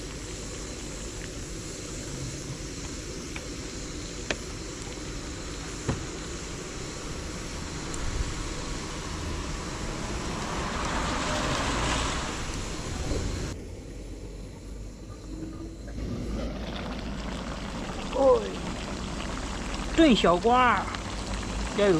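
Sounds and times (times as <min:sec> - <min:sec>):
gas stove hissing: 0:00.0 - 0:21.9
light truck passing: 0:07.8 - 0:14.4.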